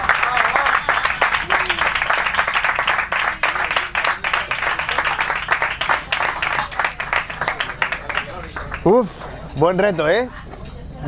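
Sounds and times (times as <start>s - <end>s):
group applauding: 0.0s - 9.4s.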